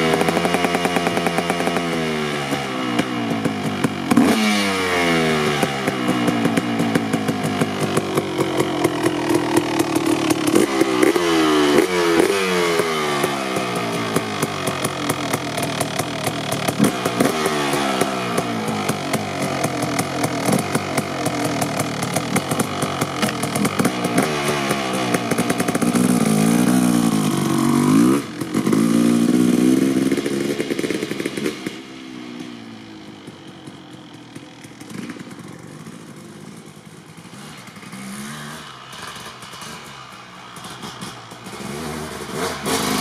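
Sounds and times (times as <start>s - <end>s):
motocross engine revving: 0.0s - 33.5s, 34.6s - 43.0s.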